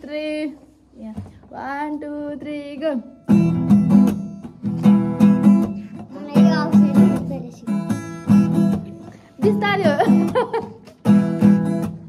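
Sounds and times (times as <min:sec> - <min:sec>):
guitar strummed in chords: 0:03.2 - 0:12.0.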